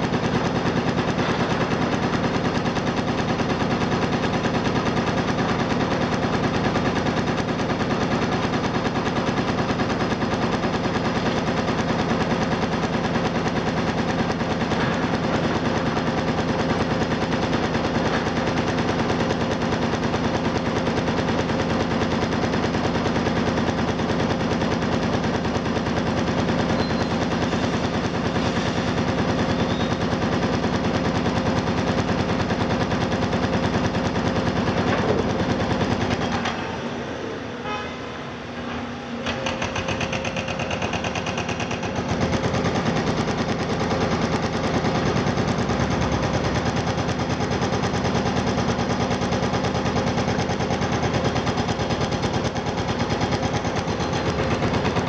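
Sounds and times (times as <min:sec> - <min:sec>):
fast mechanical rattle: 0:00.0 - 0:36.6, 0:39.3 - 0:55.0
diesel excavator engine hum: 0:00.0 - 0:55.0.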